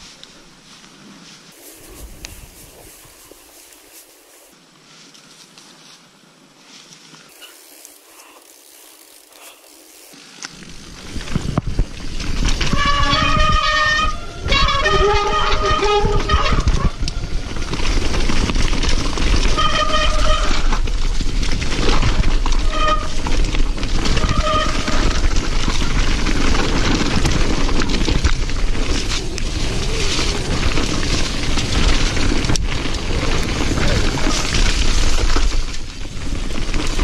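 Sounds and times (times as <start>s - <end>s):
bike rattling over roots: 7.3s - 37.0s
wind rush on camera: 10.6s - 19.0s.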